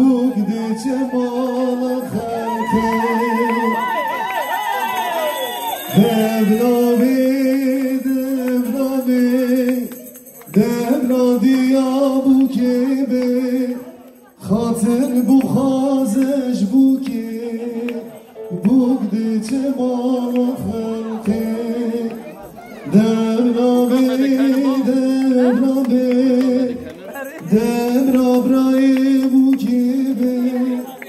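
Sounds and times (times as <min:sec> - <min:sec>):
man singing slow song: 0:00.0 - 0:04.7, 0:05.6 - 0:31.0.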